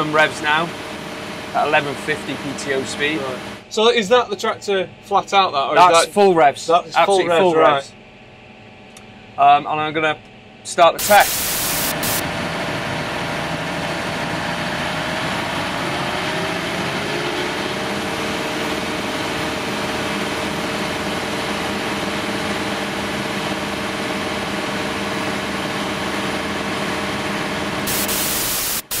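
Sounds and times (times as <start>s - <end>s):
tractor diesel engine under load: 0.0s - 3.7s, 12.0s - 28.3s
static hiss: 11.0s - 12.2s, 27.9s - 29.0s.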